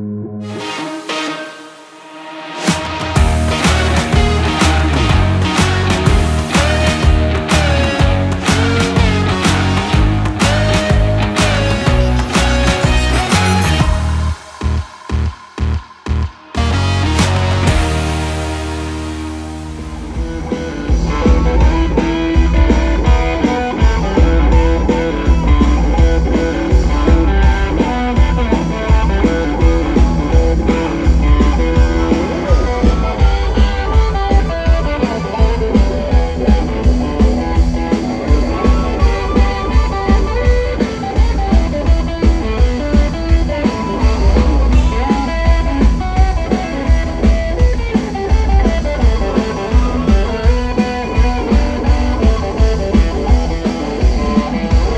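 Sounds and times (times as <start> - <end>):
electric guitar: 0.0 - 54.9
kick drum beat: 3.2 - 13.2.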